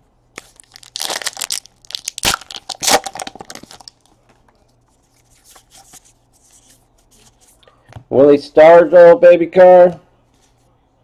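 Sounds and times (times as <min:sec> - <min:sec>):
wrapper crinkling: 0:00.4 - 0:04.1
wrapper ripping: 0:00.4 - 0:04.1.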